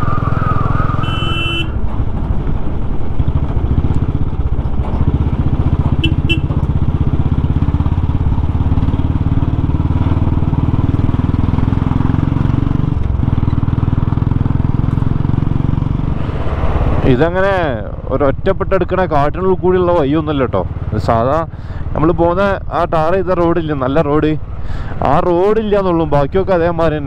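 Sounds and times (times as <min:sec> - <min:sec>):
motorcycle engine rumbling: 0:00.0 - 0:27.0.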